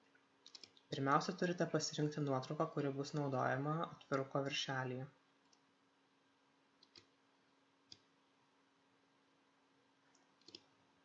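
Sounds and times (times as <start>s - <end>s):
faint steady hum: 0.0s - 11.0s
computer mouse clicks: 0.4s - 1.6s, 5.4s - 5.7s, 6.8s - 7.2s, 7.9s - 8.1s, 10.1s - 10.7s.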